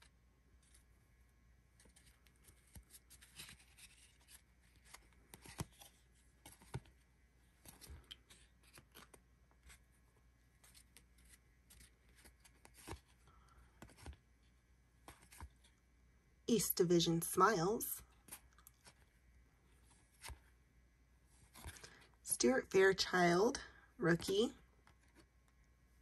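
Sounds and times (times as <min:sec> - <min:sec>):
cards clicking and sliding: 0:01.8 - 0:07.0, 0:07.6 - 0:09.8, 0:10.6 - 0:14.2.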